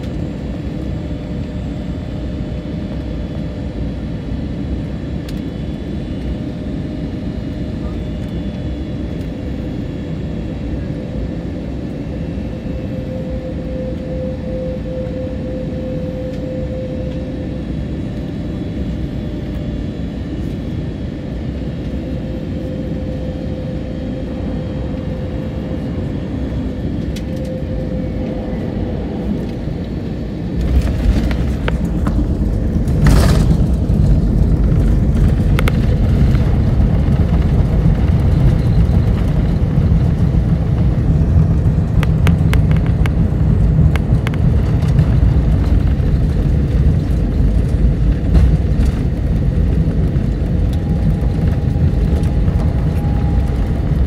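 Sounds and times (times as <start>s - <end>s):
airplane engine drone: 0.0s - 54.0s
wheels rumbling on runway: 17.0s - 54.0s.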